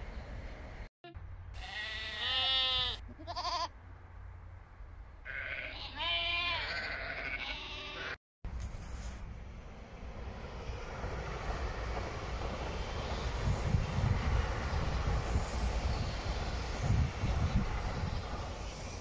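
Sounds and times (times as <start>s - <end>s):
sheep bleating: 1.6s - 3.7s, 5.2s - 8.2s.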